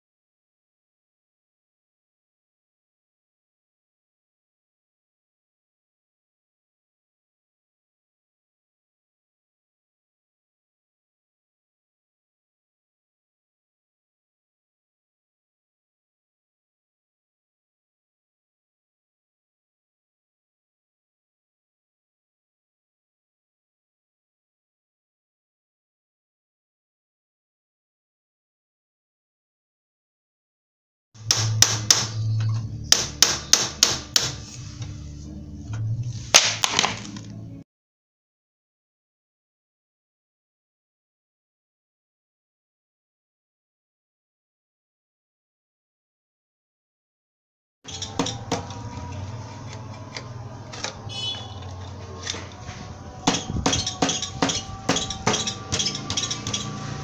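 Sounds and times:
hammer striking metal: 0:31.2 - 0:34.4, 0:47.9 - 0:57.0.

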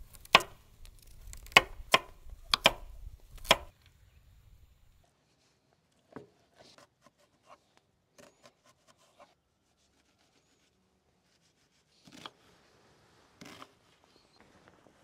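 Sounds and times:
knife chopping on wooden board: 0:00.2 - 0:00.6, 0:01.4 - 0:03.7.

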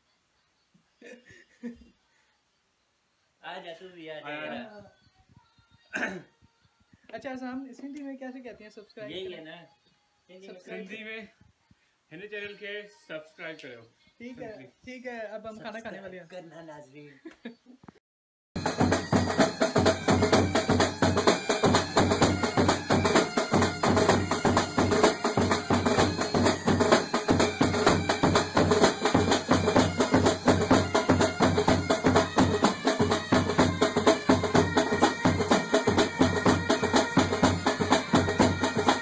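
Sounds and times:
music with drum beat: 0:18.6 - 0:39.0.

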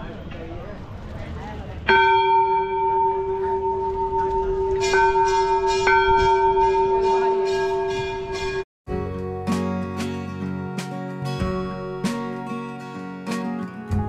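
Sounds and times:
temple bell ringing: 0:01.9 - 0:08.6.

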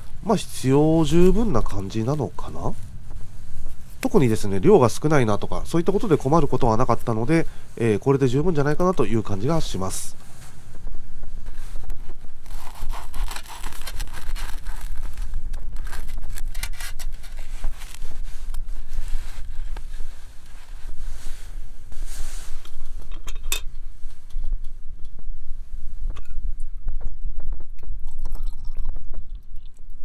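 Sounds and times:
knife sawing through toasted sandwich: 0:12.5 - 0:14.8.

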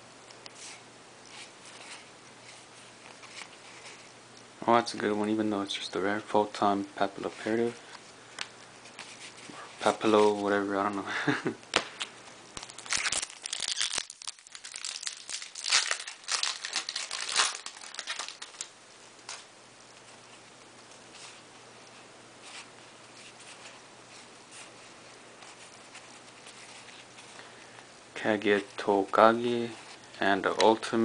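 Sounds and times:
foil wrapper crinkling and tearing: 0:12.6 - 0:18.7.

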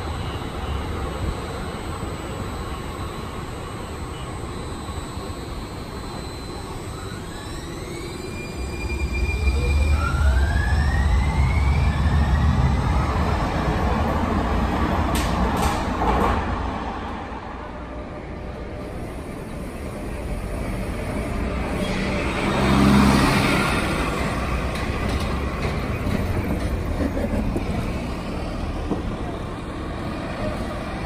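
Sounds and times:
light rail train rumbling: 0:00.0 - 0:05.0, 0:07.0 - 0:31.0
street traffic: 0:00.0 - 0:31.0
bus passing with low hum: 0:07.1 - 0:31.0.

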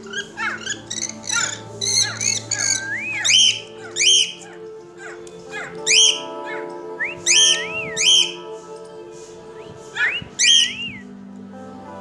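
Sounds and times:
cockatiel whistling: 0:00.0 - 0:08.5, 0:09.5 - 0:11.1
background music: 0:00.0 - 0:12.0.

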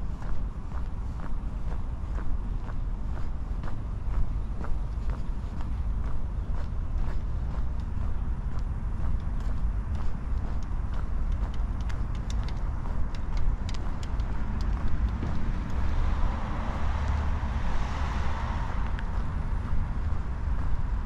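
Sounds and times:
steady low rumble: 0:00.0 - 0:21.0
car passing by: 0:13.7 - 0:21.0.

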